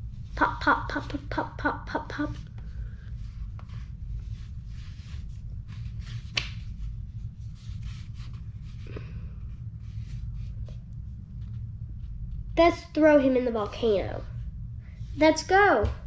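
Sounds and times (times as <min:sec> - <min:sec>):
steady low hum: 0:00.0 - 0:16.0
paper pages rustling: 0:03.2 - 0:08.9.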